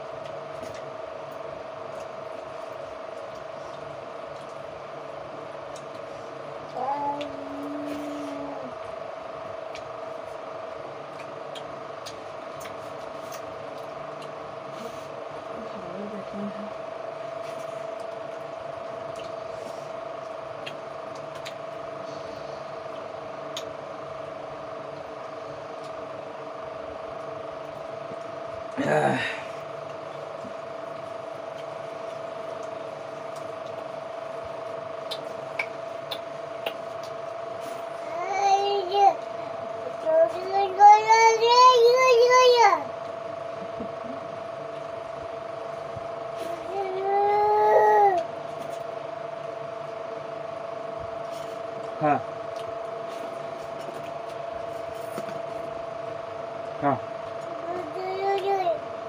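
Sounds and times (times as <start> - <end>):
steady hum: 0.0 - 59.0
eating clicks and smacks: 5.6 - 7.4, 11.1 - 14.4, 17.9 - 19.4, 20.2 - 21.8, 22.9 - 23.8, 30.9 - 34.4, 35.0 - 37.3.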